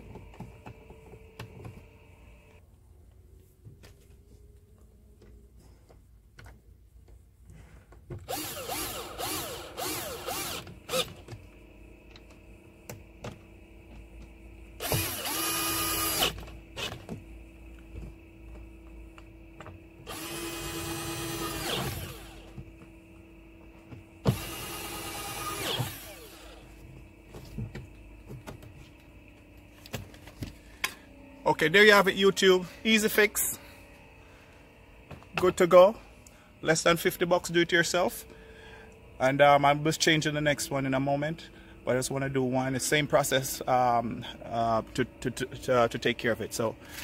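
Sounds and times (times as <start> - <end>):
cordless drill driving screws: 8.3 - 11.2, 14.8 - 16.9, 20.1 - 22.5, 24.3 - 26.6.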